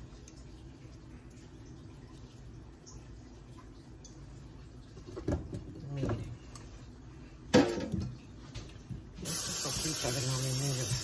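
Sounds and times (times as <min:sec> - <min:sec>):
sharp clatter of dishes: 0:07.5 - 0:08.1.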